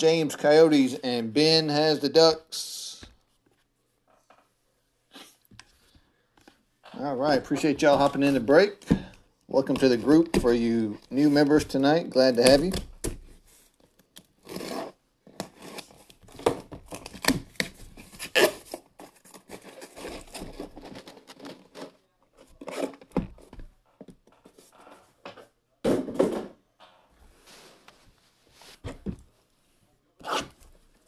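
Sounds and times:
boxes knocking down: 0:25.8 - 0:26.6.

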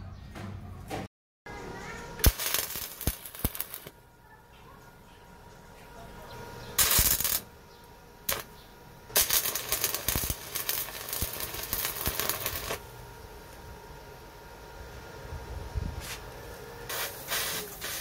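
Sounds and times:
welding arc crackling: 0:02.2 - 0:04.0, 0:06.8 - 0:07.6, 0:08.2 - 0:08.5, 0:09.1 - 0:14.6, 0:16.0 - 0:18.0.

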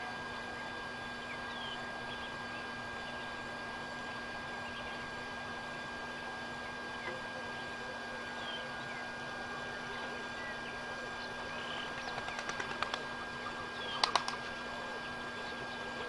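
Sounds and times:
small birds chirping: 0:06.9 - 0:16.0
sharp clicks: 0:14.0 - 0:14.4.

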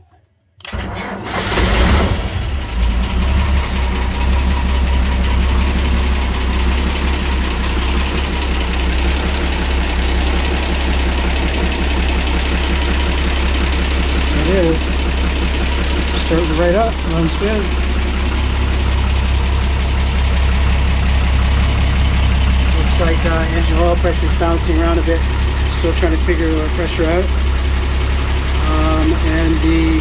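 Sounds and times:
diesel engine starting and idling: 0:00.6 - 0:30.0.

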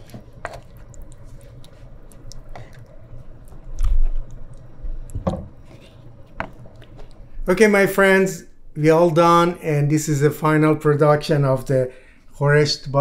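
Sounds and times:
stew sauce sloshing: 0:00.0 - 0:07.4.

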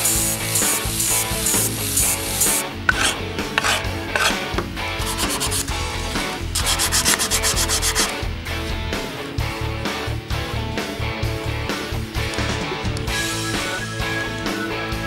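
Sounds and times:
sandpaper rubbing on wood: 0:00.0 - 0:04.4, 0:05.0 - 0:08.1.

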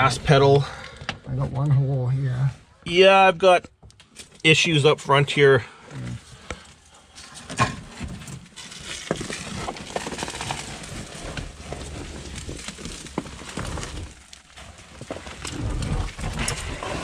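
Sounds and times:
carpet rustling and scraping: 0:06.2 - 0:17.0.

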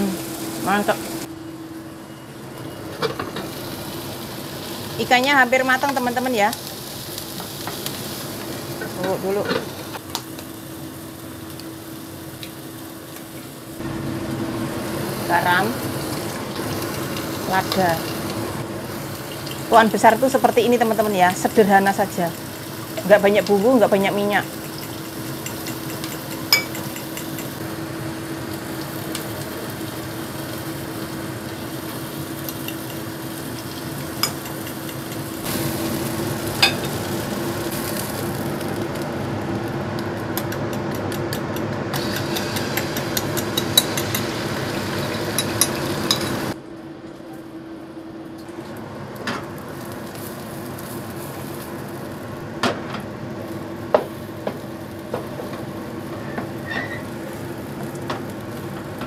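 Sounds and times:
frying sizzle: 0:00.0 - 0:46.6, 0:47.5 - 0:59.0
egg sizzling in hot oil: 0:03.2 - 0:39.6, 0:41.9 - 0:46.6.

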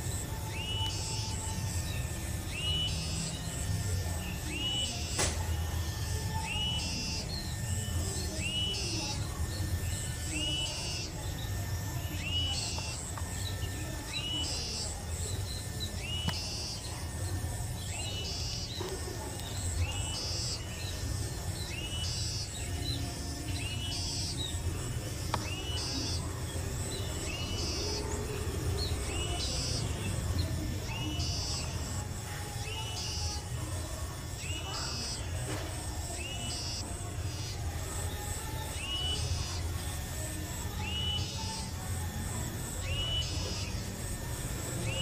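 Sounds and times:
low background noise: 0:00.0 - 0:45.0
small bird chirping: 0:00.0 - 0:45.0.

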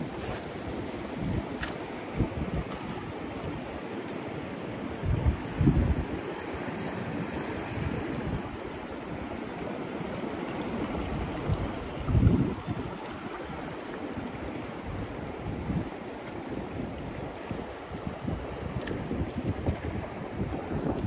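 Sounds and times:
wind buffeting microphone: 0:00.0 - 0:03.6, 0:05.0 - 0:06.2, 0:10.7 - 0:21.0
surf on rocky shore: 0:00.0 - 0:21.0.

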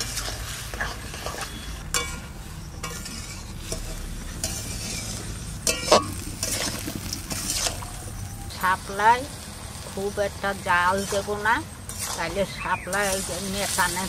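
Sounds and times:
spatula scraping metal pan: 0:00.0 - 0:07.9, 0:10.9 - 0:14.0
food sizzling: 0:00.0 - 0:14.0
ringing metal clanks: 0:01.4 - 0:06.7.

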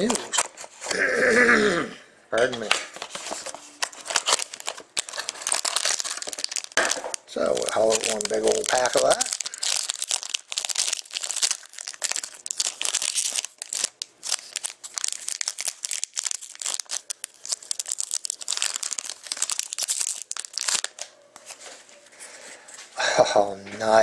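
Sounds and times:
foil wrapper crinkling and tearing: 0:03.0 - 0:21.5.

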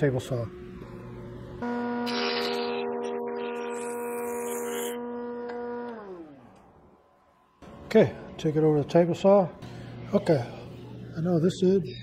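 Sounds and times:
jointer motor whining: 0:00.5 - 0:10.2
motor winding down: 0:00.7 - 0:08.2
jointer cutting wood board: 0:01.8 - 0:06.8.

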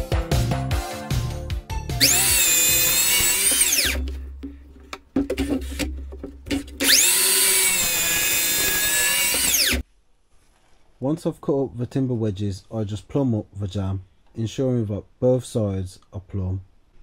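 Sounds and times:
mitre saw cutting wood: 0:02.0 - 0:04.1, 0:06.6 - 0:09.8.

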